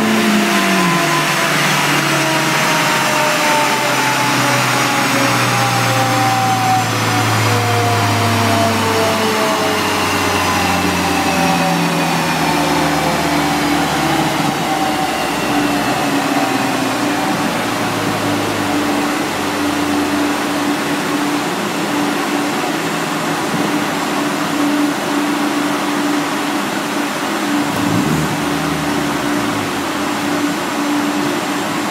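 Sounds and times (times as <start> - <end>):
cooling fan air rush: 0.0 - 31.9
falling whine of spinning rollers: 0.0 - 31.9
low drivetrain sound: 25.8 - 31.9.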